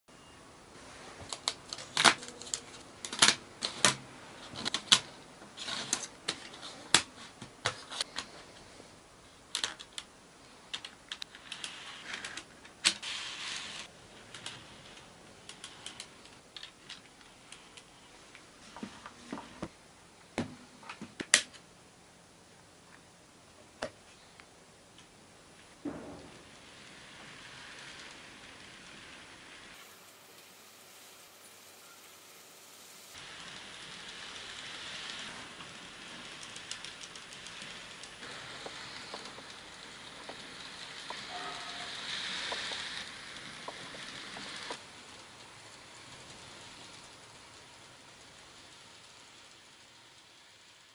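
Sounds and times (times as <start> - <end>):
plastic track pieces clicking: 1.3 - 7.1, 9.5 - 10.1, 10.7 - 17.9, 26.4 - 29.9, 33.1 - 48.7.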